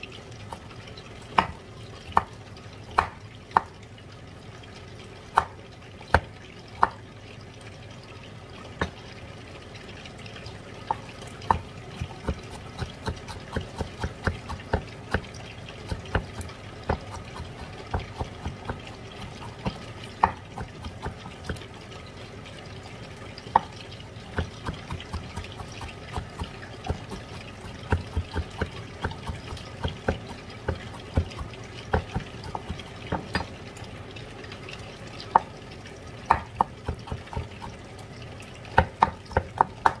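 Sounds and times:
knife tapping on cutting board: 15.9 - 21.6, 24.4 - 33.5, 36.3 - 37.5, 38.8 - 40.0.

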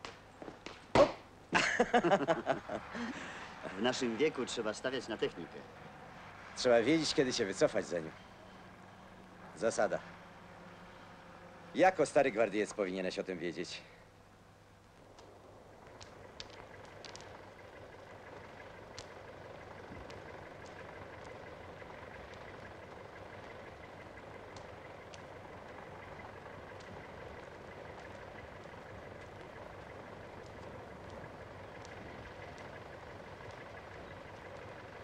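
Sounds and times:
distant engine drone: 0.0 - 35.0
sharp clicks: 14.8 - 35.0.

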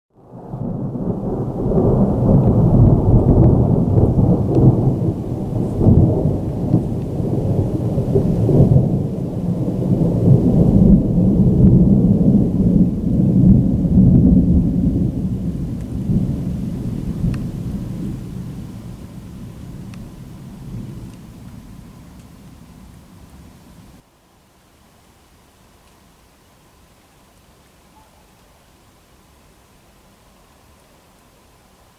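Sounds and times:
rolling thunder rumble: 0.2 - 24.0.

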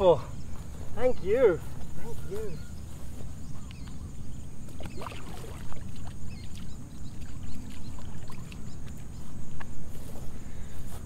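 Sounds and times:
water splashing at bank: 4.6 - 9.7.

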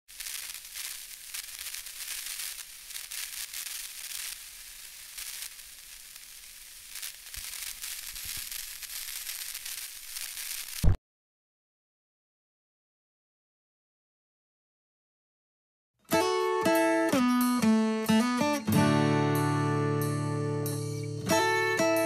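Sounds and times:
crackling static hiss: 0.0 - 11.0.

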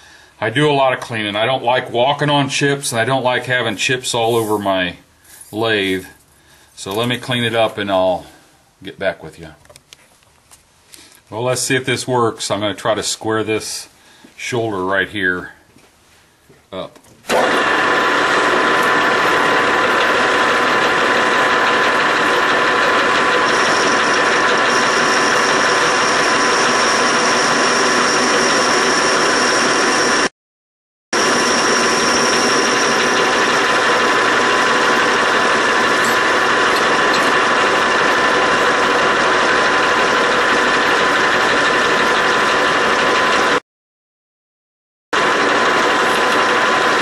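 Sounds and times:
metal lathe running: 17.3 - 30.3, 31.2 - 43.6, 45.2 - 47.0
high whine: 18.7 - 30.3, 31.2 - 39.8.

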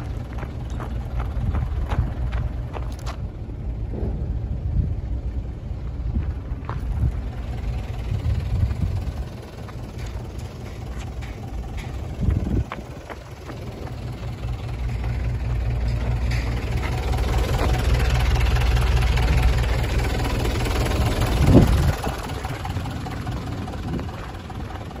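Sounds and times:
diesel engine idling: 0.0 - 25.0.

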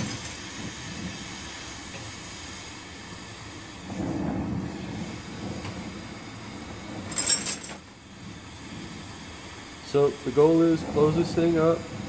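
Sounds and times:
torch flame rushing: 0.0 - 12.0.

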